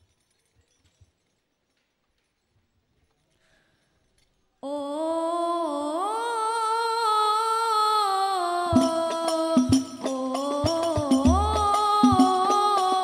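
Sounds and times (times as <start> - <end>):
boy singing solo melismatic phrase: 4.7 - 13.0.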